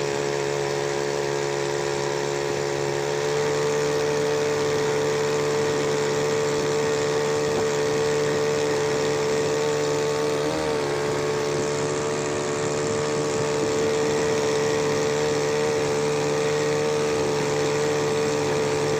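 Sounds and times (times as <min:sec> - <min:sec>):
two-stroke outboard motor running: 0:00.0 - 0:18.9.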